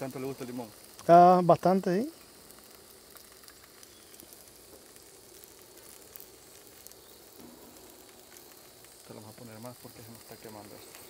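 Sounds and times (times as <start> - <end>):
tortillas sizzling in a pan: 0.0 - 11.0.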